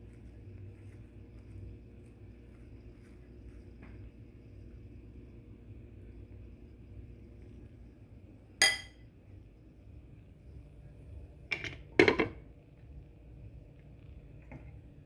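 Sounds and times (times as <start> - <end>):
glass lid knocking on metal pot: 11.5 - 12.4.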